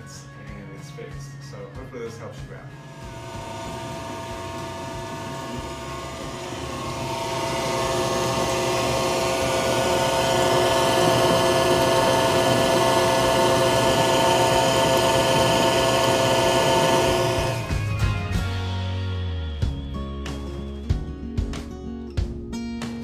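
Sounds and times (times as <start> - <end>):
dishwasher pump motor grinding: 2.8 - 17.8.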